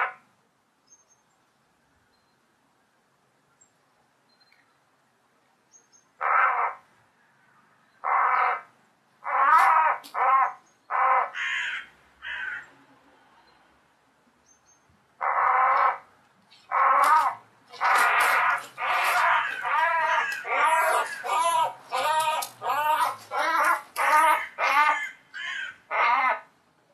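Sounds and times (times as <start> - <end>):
crow cawing: 8.0 - 12.7, 15.2 - 16.0, 16.7 - 26.5.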